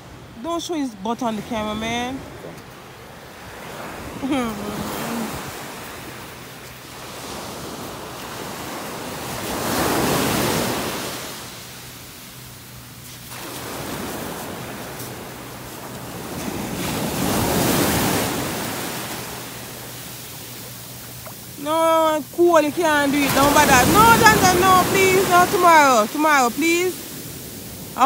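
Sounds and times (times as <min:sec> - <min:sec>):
small waves breaking on shore: 0:00.0 - 0:28.0.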